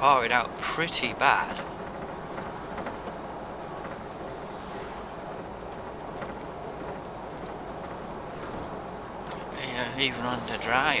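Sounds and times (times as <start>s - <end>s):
vehicle engine and road noise: 0.0s - 11.0s.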